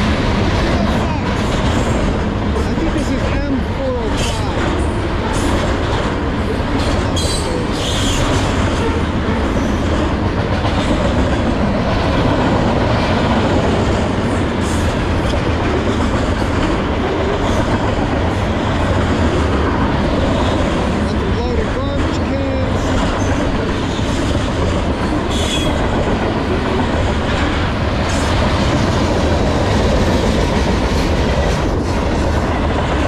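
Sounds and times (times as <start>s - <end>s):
train wheels rumbling on rails: 0.0s - 33.0s
wheel squeals and clanks: 7.2s - 9.0s.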